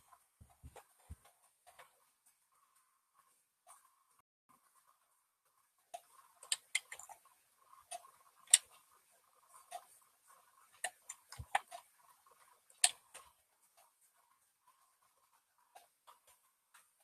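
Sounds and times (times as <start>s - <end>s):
stylus clicking on graphics tablet: 0.0s - 17.0s.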